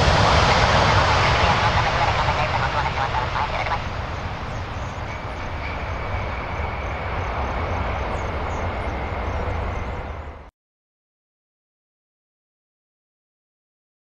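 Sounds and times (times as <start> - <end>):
faint high jet whine: 0.0 - 10.5
jet engines rumbling: 0.0 - 10.5.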